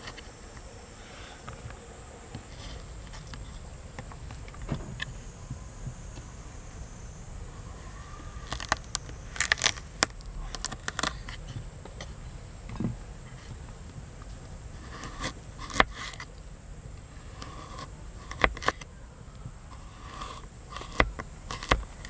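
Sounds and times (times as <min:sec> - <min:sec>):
high insect buzz: 0:00.0 - 0:22.0.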